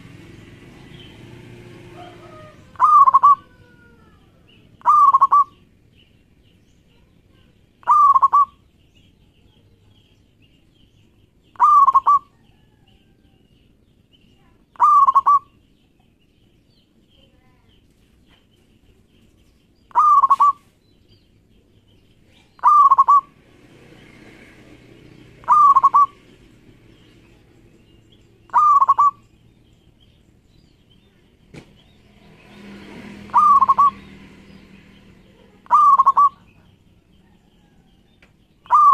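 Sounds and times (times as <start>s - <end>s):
dove cooing: 1.8s - 5.6s, 7.8s - 8.6s, 11.5s - 12.8s, 14.7s - 15.6s, 19.9s - 20.6s, 22.4s - 23.4s, 25.2s - 26.5s, 28.4s - 29.3s, 33.2s - 34.1s, 35.2s - 36.6s, 38.6s - 38.9s.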